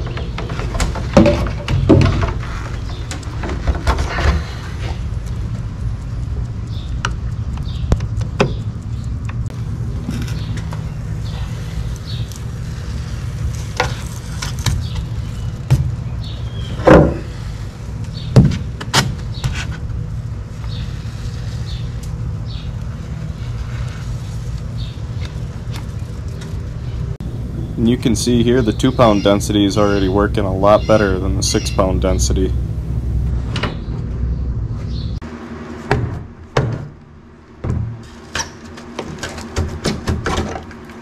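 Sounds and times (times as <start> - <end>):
low rumble: 27.1 - 35.2.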